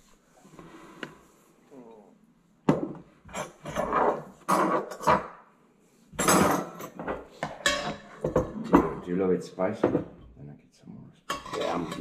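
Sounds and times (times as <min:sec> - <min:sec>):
cutlery clinking on ceramic bowl: 0:06.2 - 0:09.0.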